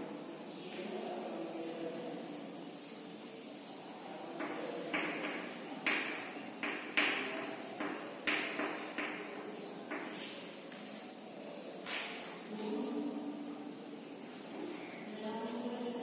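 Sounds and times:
chalk strokes on blackboard: 0:00.7 - 0:11.1.

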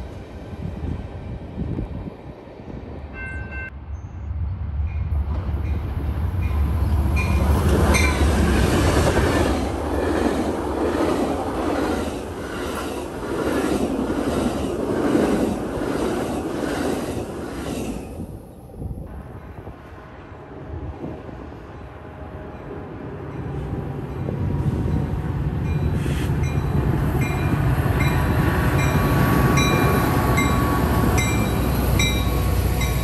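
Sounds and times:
train wheels clickety-clack: 0:07.2 - 0:18.0.

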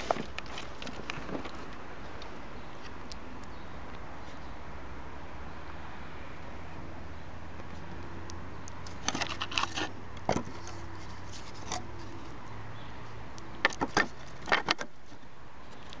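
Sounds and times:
firewood logs knocking together: 0:09.0 - 0:10.8, 0:13.6 - 0:15.0.

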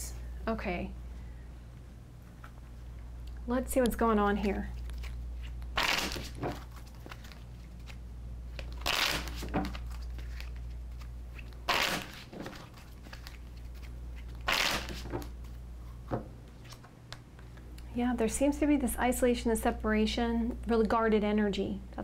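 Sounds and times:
steady low hum: 0:00.0 - 0:22.0
cards shuffling: 0:04.8 - 0:17.5.

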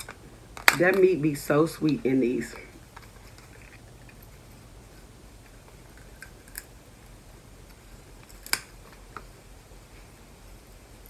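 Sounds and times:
low steady hum: 0:00.0 - 0:11.0
crab shells clicking: 0:08.2 - 0:08.8.

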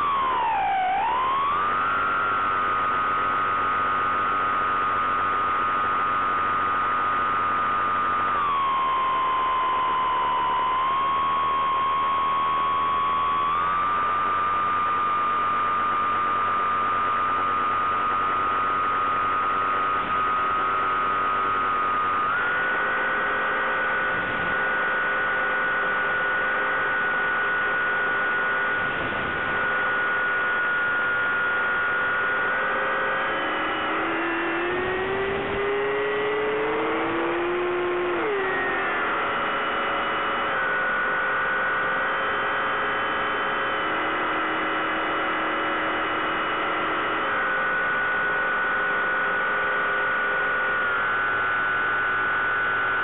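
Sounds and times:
model plane motor whining: 0:00.0 - 0:02.9, 0:06.5 - 0:41.6.

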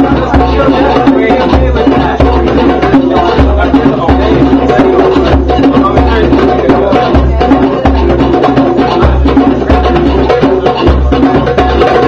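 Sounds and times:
hand drums playing: 0:00.0 - 0:12.0.

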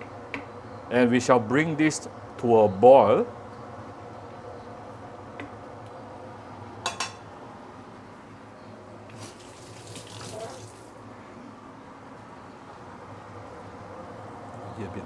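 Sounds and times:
steady low hum: 0:00.0 - 0:09.1
utensil clinking against pot: 0:06.8 - 0:07.2.

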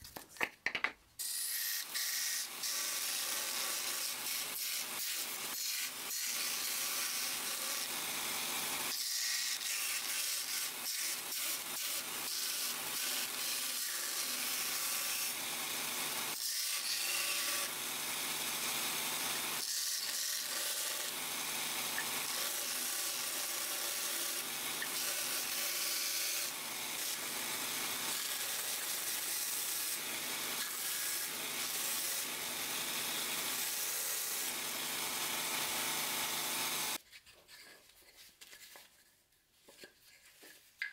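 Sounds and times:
belt sander grinding: 0:02.4 - 0:37.0.

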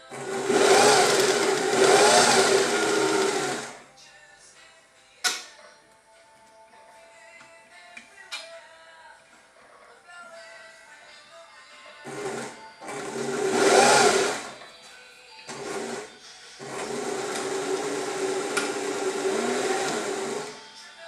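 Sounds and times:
sewing machine stitching: 0:00.0 - 0:03.8, 0:12.0 - 0:14.6, 0:15.5 - 0:20.6.

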